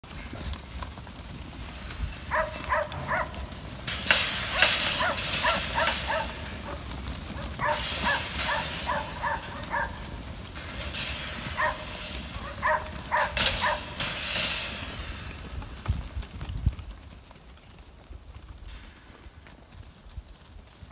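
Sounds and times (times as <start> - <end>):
hooves pattering on dirt and leaves: 0.0 - 20.9
dog barking: 2.3 - 3.4, 5.0 - 6.8, 7.4 - 10.1, 11.6 - 13.8.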